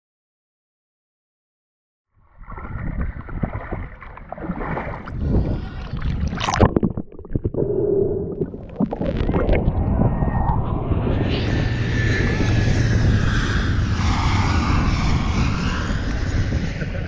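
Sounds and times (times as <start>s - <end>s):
water sloshing and splashing: 2.2s - 7.6s.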